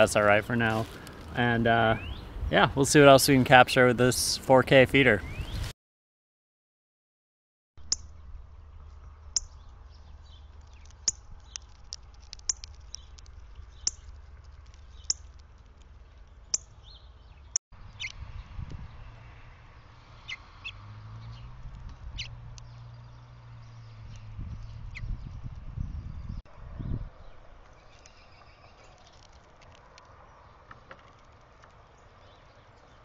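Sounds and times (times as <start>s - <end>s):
bird chip calls: 1.9s - 2.3s, 16.3s - 18.2s.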